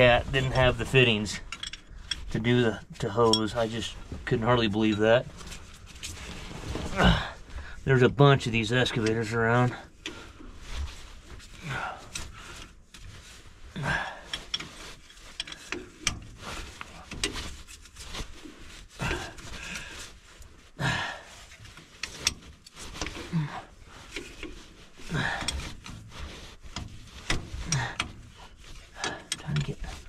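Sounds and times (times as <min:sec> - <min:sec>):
small metal clicks and rubbing: 0:00.9 - 0:03.8, 0:14.2 - 0:18.6, 0:21.5 - 0:23.3, 0:24.0 - 0:30.0
low vocal sounds: 0:06.8 - 0:07.4.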